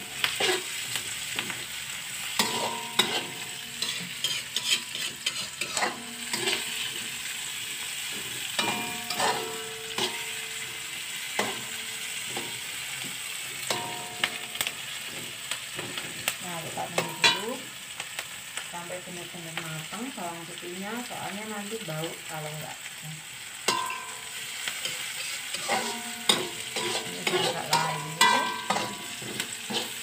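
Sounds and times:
metal spatula scraping wok: 0.0 - 16.3, 23.7 - 30.0
paste sizzling in hot oil: 0.0 - 30.0
pan ringing: 8.6 - 10.8, 13.7 - 14.8, 23.7 - 24.4, 25.6 - 29.4.

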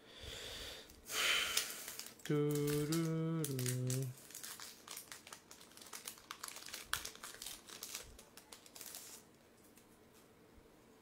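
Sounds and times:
foil wrapper crinkling: 1.4 - 9.3.

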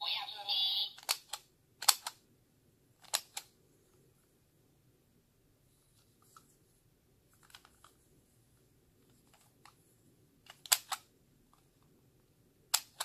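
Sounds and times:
hard plastic toy clicks: 1.0 - 2.2, 3.0 - 3.5, 10.5 - 11.0, 12.7 - 13.0.

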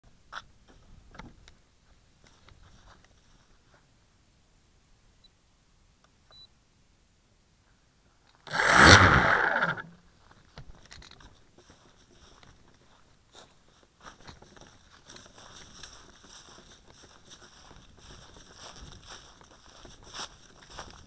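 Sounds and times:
loud crunching scrape: 8.5 - 9.9
crackling and rustling on dry grass: 10.2 - 21.0.

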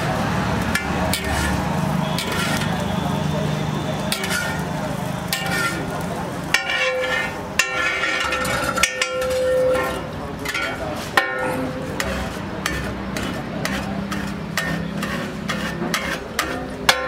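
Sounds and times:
light sizzle: 0.0 - 11.1
metal spatula scraping griddle: 0.0 - 17.0.

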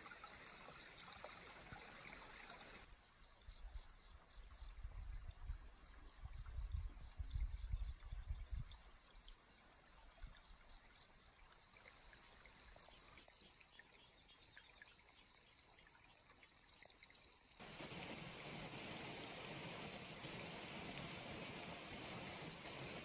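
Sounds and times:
stream water flowing: 0.0 - 2.9, 8.9 - 23.0.

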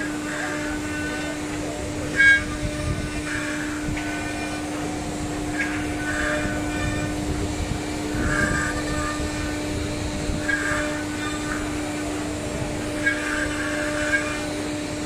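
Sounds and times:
cnc router spindle whine and cutting: 0.0 - 15.0.

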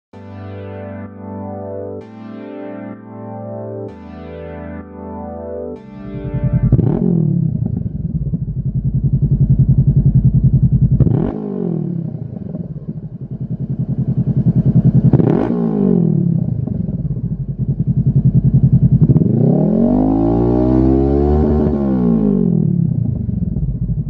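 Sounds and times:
motorcycle engine idling and revving: 6.1 - 24.0.

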